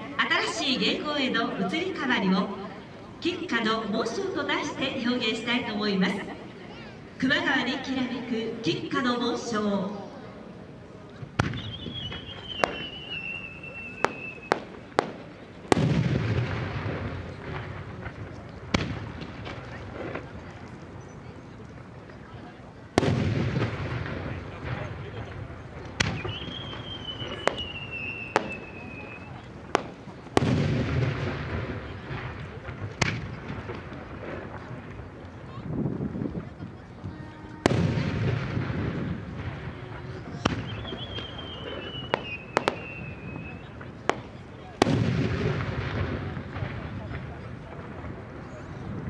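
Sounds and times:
whistling firework shell: 0:11.4 - 0:15.3, 0:25.9 - 0:30.6, 0:40.4 - 0:45.0
firework shells bursting: 0:23.0 - 0:35.0.

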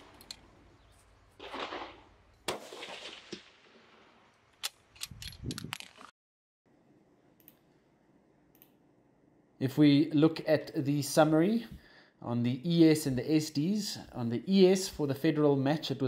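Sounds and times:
rifle shot: 0:01.4 - 0:04.2.

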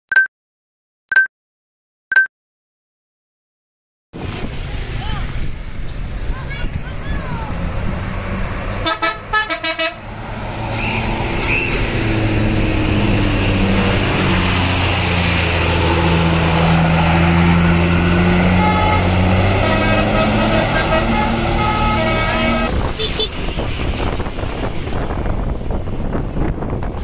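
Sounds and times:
bus running: 0:04.2 - 0:27.0
bus musical horn toots: 0:08.8 - 0:10.1, 0:18.2 - 0:23.6.

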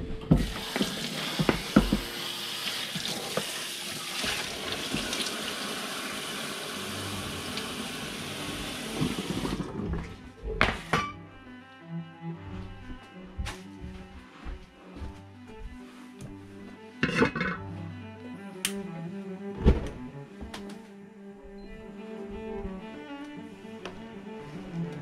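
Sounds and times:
kitchen tap running: 0:00.3 - 0:09.9.

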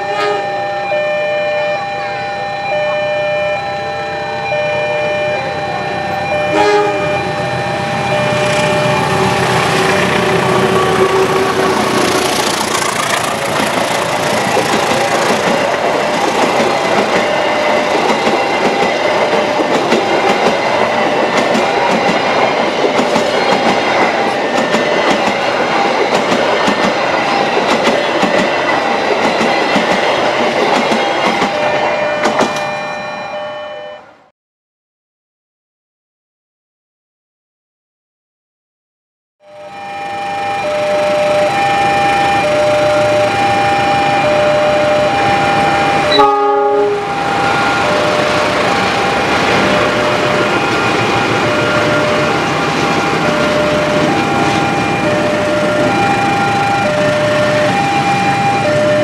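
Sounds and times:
train horn: 0:00.0 - 0:00.9, 0:05.4 - 0:12.6, 0:45.1 - 0:48.3
train wheels clattering over rail joints: 0:09.7 - 0:31.6.

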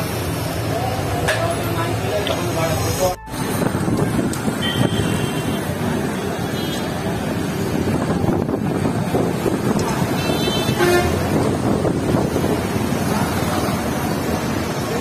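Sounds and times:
street traffic: 0:00.0 - 0:15.0
wind buffeting microphone: 0:03.4 - 0:05.0, 0:07.6 - 0:10.3, 0:11.1 - 0:13.3.

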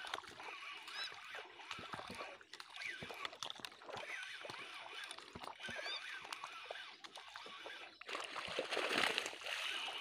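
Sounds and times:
small clicks and ticks: 0:00.0 - 0:08.0.

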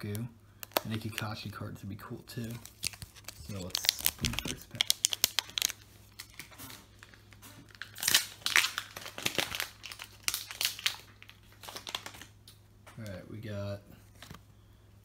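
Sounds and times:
foil wrapper crinkling and tearing: 0:00.6 - 0:01.5, 0:02.4 - 0:12.4.

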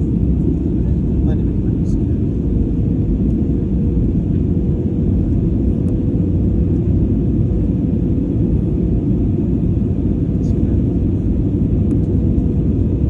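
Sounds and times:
jet engines and airflow rumble: 0:00.0 - 0:13.0.

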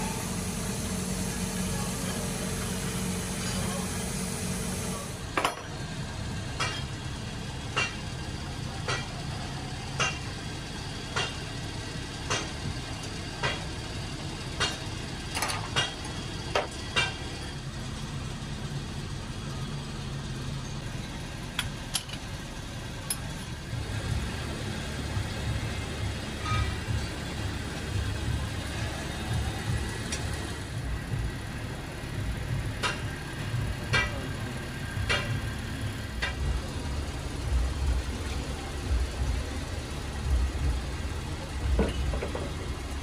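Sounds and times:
low machine hum: 0:00.0 - 0:08.0.

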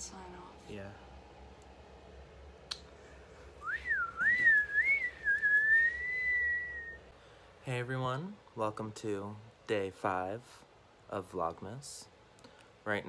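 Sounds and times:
person whistling: 0:03.6 - 0:07.0.

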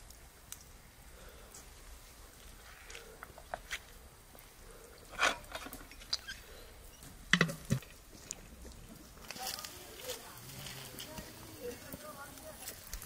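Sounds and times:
metal pots clinking: 0:05.1 - 0:06.2, 0:07.3 - 0:07.9.

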